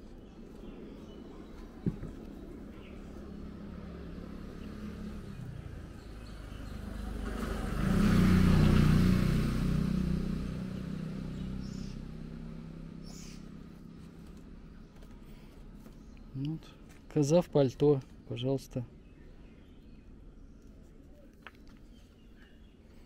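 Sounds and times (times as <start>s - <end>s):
vehicle driving past: 2.5s - 14.2s.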